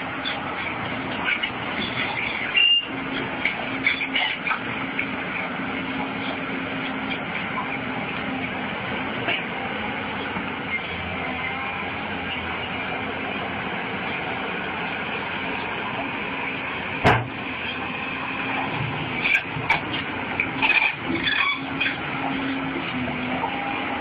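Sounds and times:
road vehicle running noise: 0.0 - 24.0
knocks and clatters: 17.0 - 17.4
loud sharp bang: 17.0 - 17.4.

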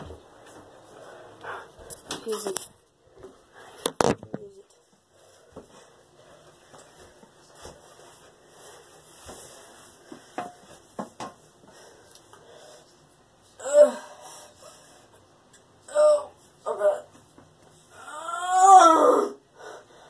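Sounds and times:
person breathing faintly: 0.8 - 2.1.

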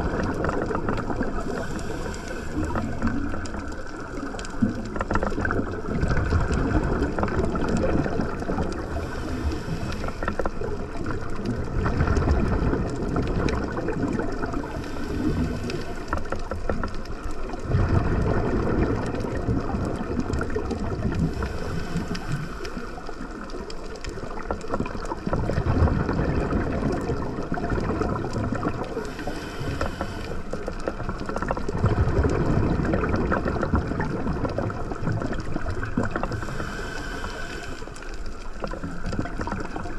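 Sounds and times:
exhaled bubbles bursting: 0.0 - 37.4, 38.2 - 39.9
steady underwater rumble: 0.0 - 39.9
regulator hissing on inhale: 1.2 - 4.2, 8.4 - 10.6, 14.5 - 16.5, 21.2 - 23.4, 28.9 - 31.0, 36.2 - 38.4.

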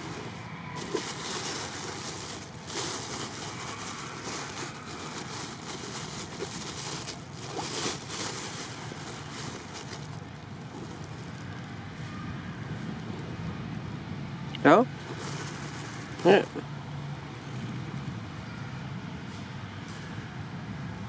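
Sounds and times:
wind rushing over microphone: 10.5 - 16.2.

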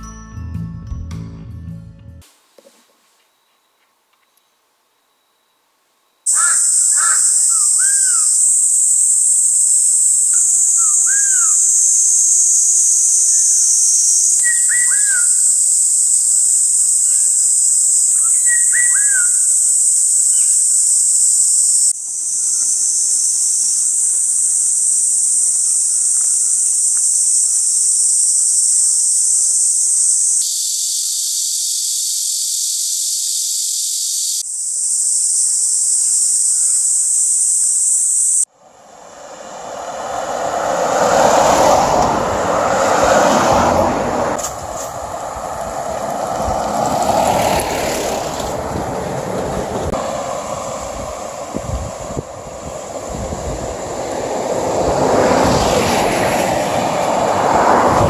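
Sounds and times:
high-pitched insect chorus: 4.9 - 58.0
crow cawing: 6.3 - 8.4
fluting whistled bird calls: 6.3 - 38.4.

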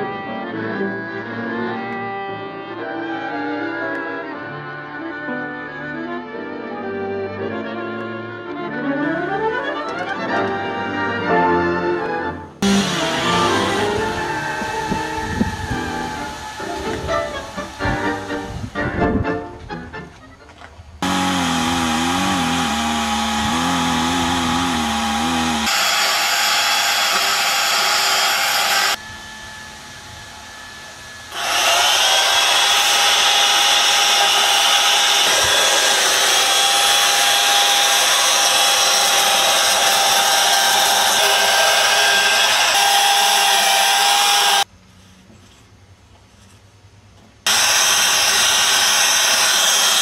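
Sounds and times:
chainsaws cutting wood: 12.6 - 18.6, 21.0 - 29.0, 31.3 - 44.7, 47.5 - 50.0.

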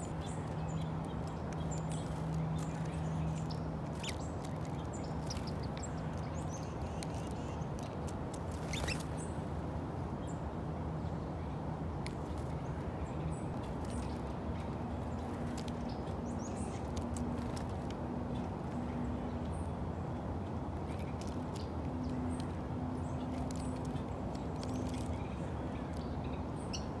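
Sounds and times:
songbirds chirping: 0.0 - 27.0.

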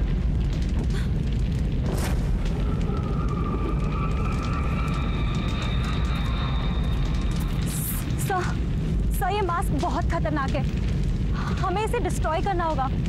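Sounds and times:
bonfire crackling: 0.0 - 13.0
deep rumbling drone: 0.0 - 13.0
high eerie tone: 2.0 - 8.8.

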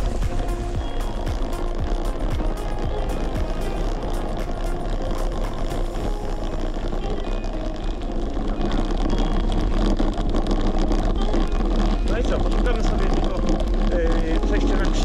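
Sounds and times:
bicycle clicks and rattles: 0.0 - 15.0
wind rumbling on microphone: 0.0 - 15.0.

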